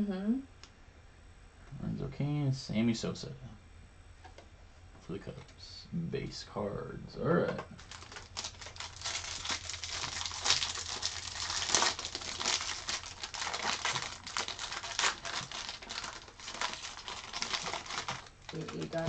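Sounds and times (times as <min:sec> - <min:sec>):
foil wrapper crinkling and tearing: 0:07.8 - 0:19.0.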